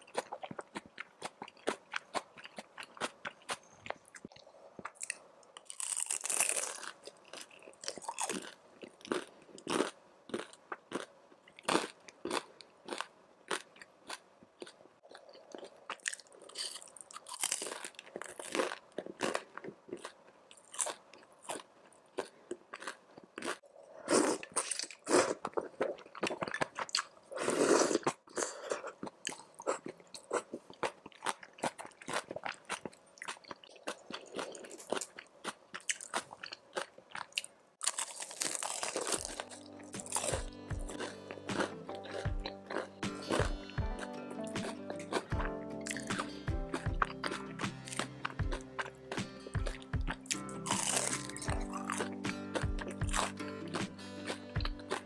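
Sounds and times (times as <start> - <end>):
crunching crispy fried food: 0.0 - 43.6, 44.6 - 55.0.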